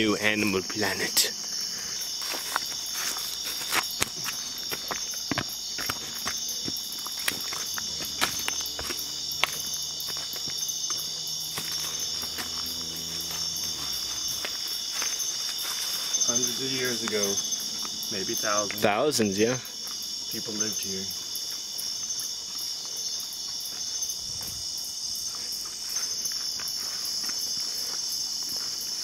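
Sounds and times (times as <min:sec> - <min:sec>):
insects chorus: 0:00.0 - 0:29.0
footsteps on stone: 0:01.5 - 0:20.3, 0:21.1 - 0:29.0
faint low hum: 0:07.0 - 0:15.1.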